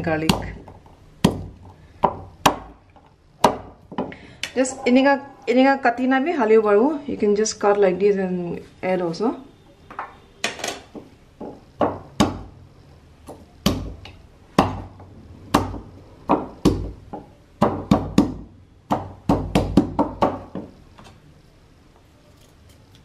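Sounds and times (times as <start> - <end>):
wooden pestle pounding in mortar: 0.0 - 2.8, 3.4 - 4.1, 11.4 - 12.5, 13.6 - 20.7.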